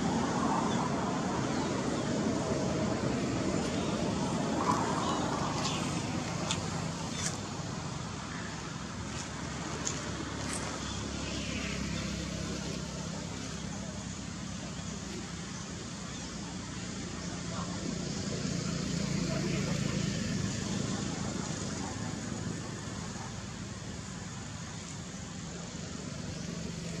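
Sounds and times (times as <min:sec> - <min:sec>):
distant traffic rumble: 0:00.0 - 0:27.0.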